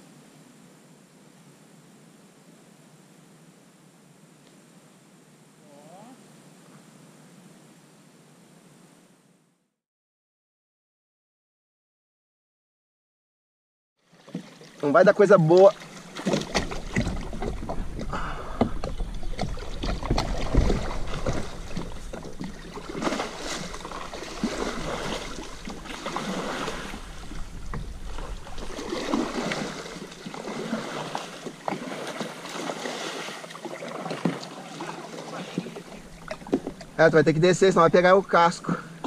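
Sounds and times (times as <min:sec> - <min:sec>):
kayak paddle splashing water: 0:14.0 - 0:39.0
wind rumble on microphone: 0:16.2 - 0:31.6.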